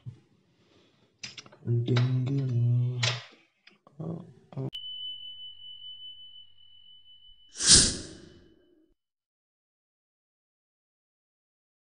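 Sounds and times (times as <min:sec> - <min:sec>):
bright ringing ding: 0:04.8 - 0:08.7
whoosh: 0:07.6 - 0:08.5.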